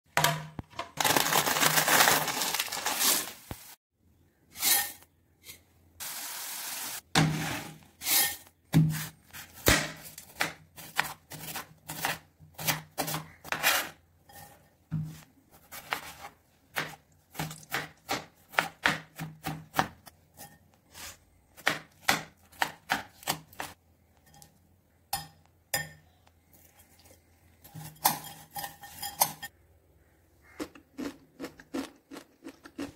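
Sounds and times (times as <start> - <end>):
dry noodles crackling: 1.0 - 3.8.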